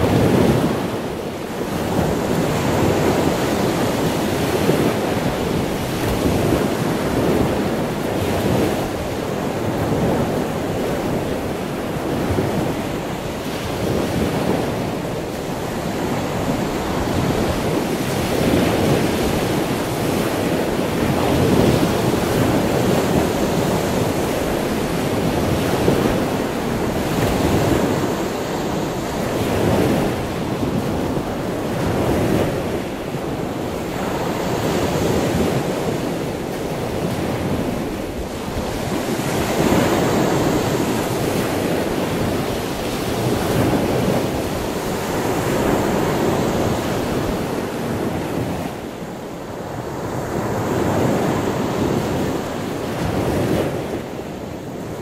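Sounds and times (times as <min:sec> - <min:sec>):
sea waves breaking on beach: 0:00.0 - 0:55.0.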